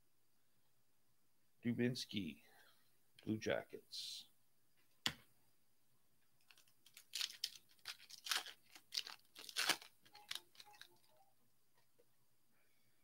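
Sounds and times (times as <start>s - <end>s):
foil wrapper tearing and crinkling: 6.5s - 11.0s.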